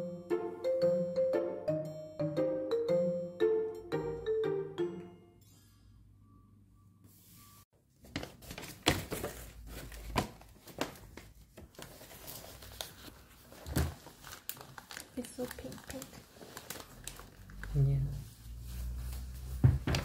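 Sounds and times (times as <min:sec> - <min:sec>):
music: 0:00.0 - 0:07.6
paper rustling: 0:08.0 - 0:20.0.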